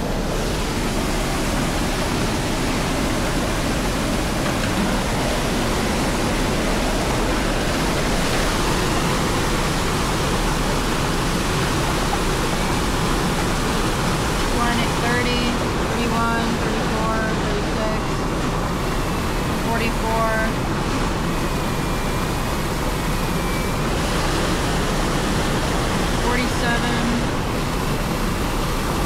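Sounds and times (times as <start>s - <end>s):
water rushing down a waterfall: 0.0s - 19.6s, 20.2s - 29.0s.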